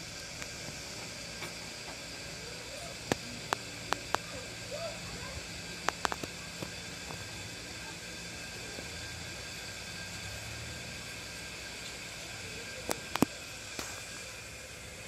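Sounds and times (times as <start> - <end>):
steady hiss: 0.0 - 15.0.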